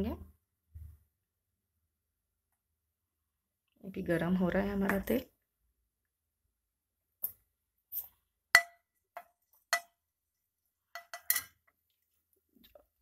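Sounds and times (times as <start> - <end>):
metal spatula tapping frying pan: 8.6 - 10.0, 10.9 - 11.7.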